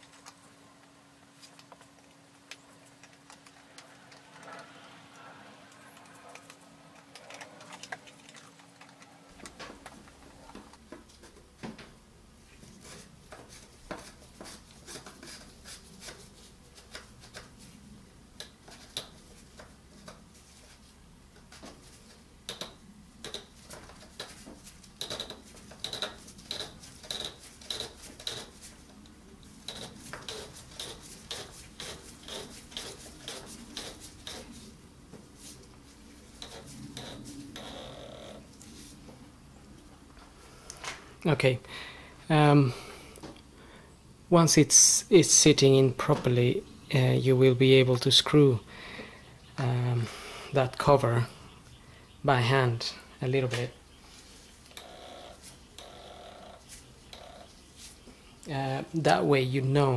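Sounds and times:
oil filter parts clicking and rubbing: 0:00.0 - 0:11.4, 0:12.5 - 0:37.8.

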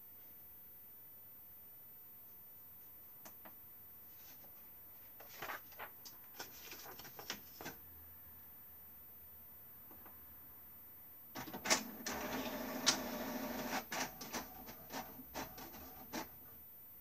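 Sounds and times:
paper rustling and crackling: 0:04.2 - 0:07.8.

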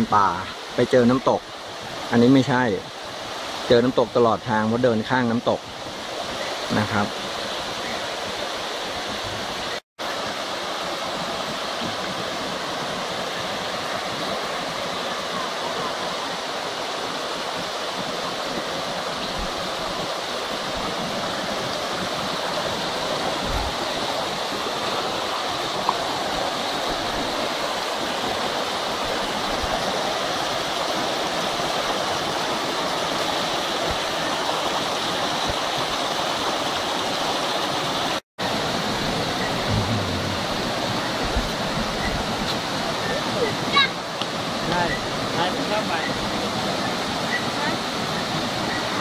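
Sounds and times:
water rushing down cascades: 0:00.0 - 0:49.0.

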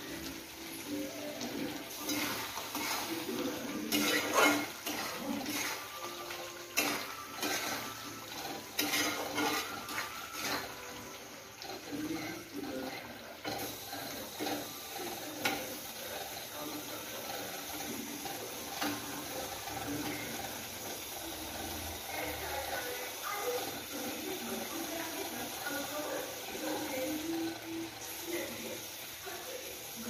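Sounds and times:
spatula stirring thick gravy: 0:00.0 - 0:27.2
spatula scraping against pan: 0:01.4 - 0:24.2.

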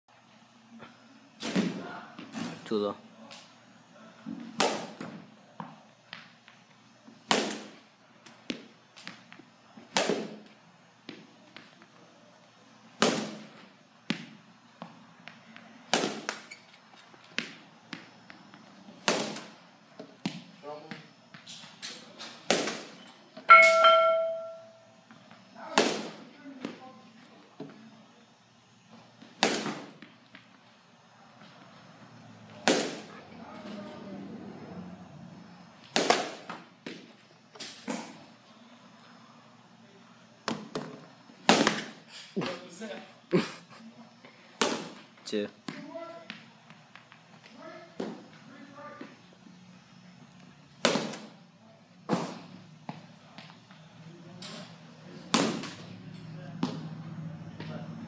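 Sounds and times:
bat cracking against ball: 0:04.4 - 0:05.2, 0:07.2 - 0:10.5, 0:13.0 - 0:14.4, 0:15.2 - 0:16.5, 0:19.0 - 0:20.5, 0:21.4 - 0:24.6, 0:25.7 - 0:26.3, 0:29.2 - 0:30.6, 0:32.5 - 0:33.1, 0:35.8 - 0:38.2, 0:40.4 - 0:42.1, 0:44.6 - 0:45.1, 0:50.8 - 0:51.4, 0:52.1 - 0:52.5, 0:55.3 - 0:55.9.

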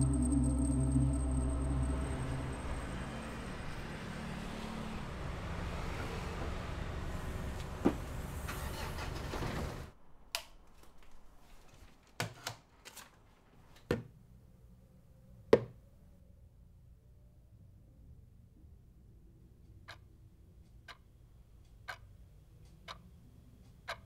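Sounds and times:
street traffic rumble: 0:00.0 - 0:09.9.

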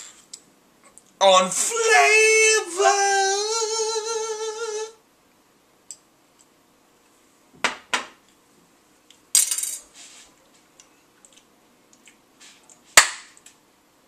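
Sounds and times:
man shouting: 0:01.2 - 0:04.1.

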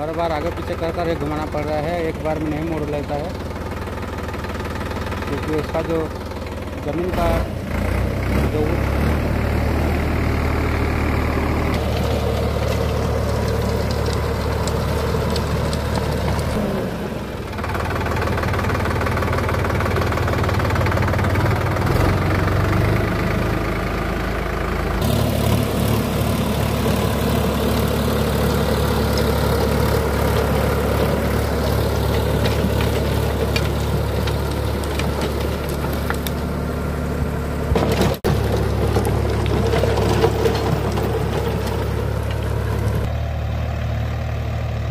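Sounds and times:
tractor diesel engine under load: 0:00.0 - 0:44.9
rotavator churning soil: 0:11.1 - 0:16.8, 0:25.0 - 0:36.9, 0:37.6 - 0:43.1.

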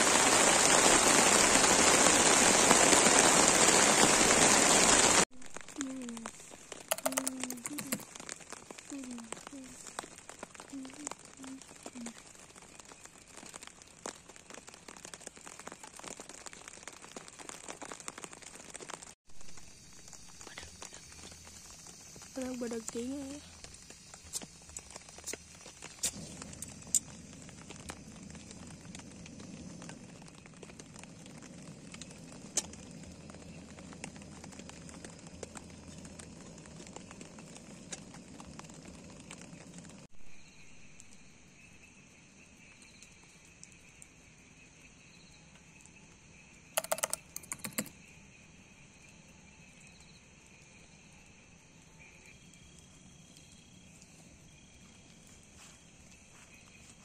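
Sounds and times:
insects chirping: 0:03.6 - 0:15.1, 0:19.3 - 0:57.0
sharp clicks: 0:46.8 - 0:47.9.

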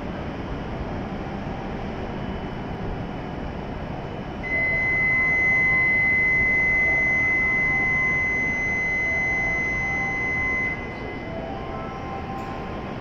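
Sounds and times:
low hum of standing train: 0:00.0 - 0:13.0
high-pitched departure buzzer: 0:04.4 - 0:11.2.

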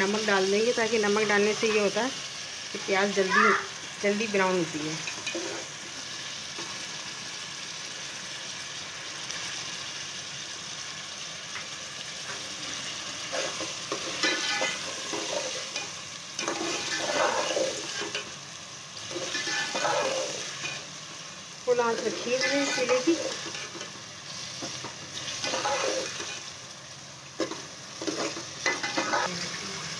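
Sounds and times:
onions sizzling in hot oil: 0:00.0 - 0:29.9.

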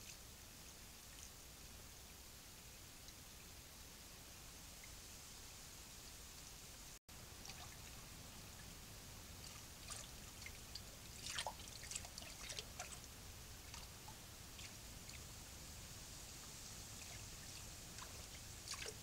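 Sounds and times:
faint hiss: 0:00.0 - 0:19.0
small splashes in stream water: 0:07.4 - 0:08.0, 0:09.4 - 0:13.1, 0:17.0 - 0:19.0.

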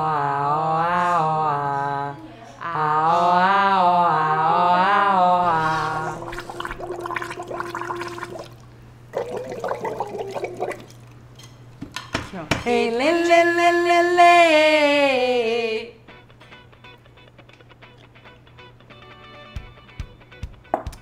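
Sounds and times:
humming through straw into water: 0:05.5 - 0:11.0
water bubbling: 0:05.6 - 0:11.1.

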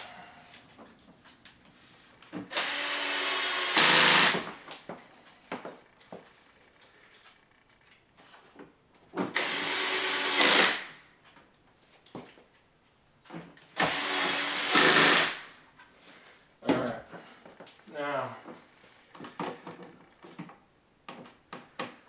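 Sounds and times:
cordless drill driving screws: 0:02.5 - 0:04.5, 0:09.3 - 0:10.9, 0:13.8 - 0:15.4.

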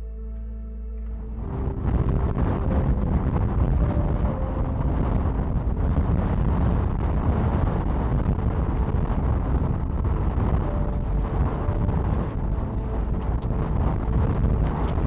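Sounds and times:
wind buffeting microphone: 0:01.1 - 0:15.0.

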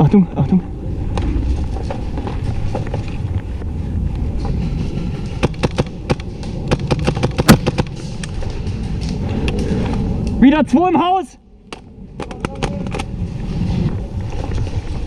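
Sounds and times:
rumble of handling noise: 0:00.2 - 0:10.7, 0:11.4 - 0:15.0
airsoft gunfire pops: 0:05.4 - 0:07.9.

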